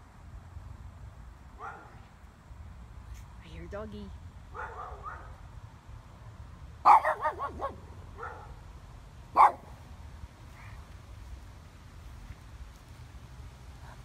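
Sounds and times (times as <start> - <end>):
dog barking: 1.6 - 2.0, 4.5 - 5.4, 6.8 - 8.6, 9.3 - 9.8.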